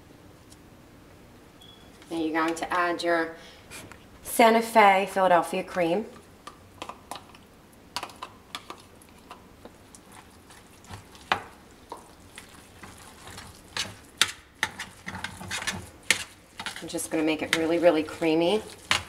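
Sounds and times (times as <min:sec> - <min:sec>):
spoon stirring rice in metal pan: 0:08.0 - 0:19.0
metal spoon scraping plastic tub: 0:12.9 - 0:19.0.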